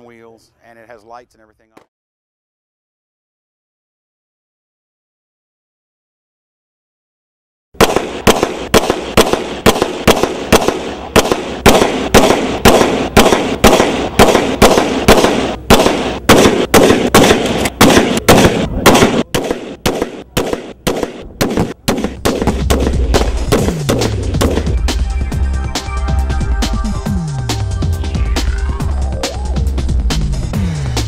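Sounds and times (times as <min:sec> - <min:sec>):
rapid gunshots with echo: 0:07.8 - 0:24.8
music with low steady beat: 0:22.0 - 0:31.0.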